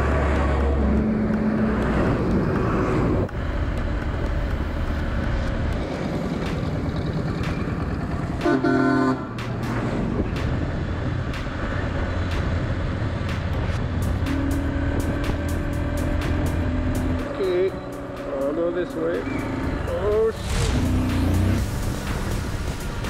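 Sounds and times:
motorbike running on road: 0.0 - 23.0
vehicle horn honking: 8.4 - 9.3.

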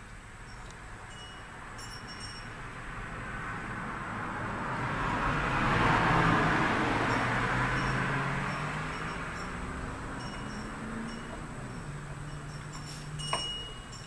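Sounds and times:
vehicle driving past: 1.5 - 13.3.

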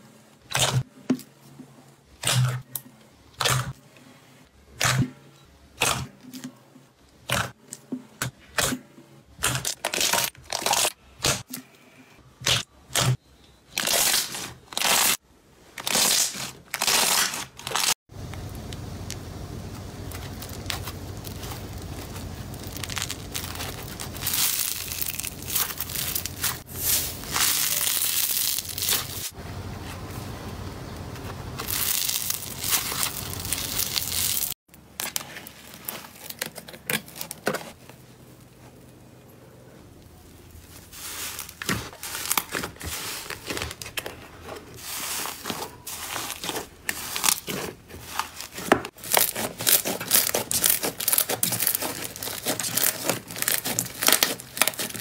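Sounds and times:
foam block crunching in hand: 20.1 - 29.4, 44.8 - 55.0
slime kneaded with sticky pops: 45.4 - 55.0.

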